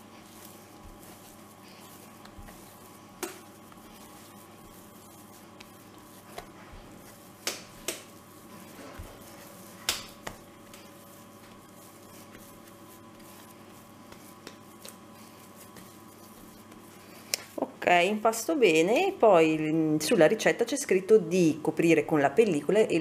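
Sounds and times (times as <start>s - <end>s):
dough slapping on wooden board: 0.0s - 17.7s
dough pressing and folding: 0.0s - 19.2s.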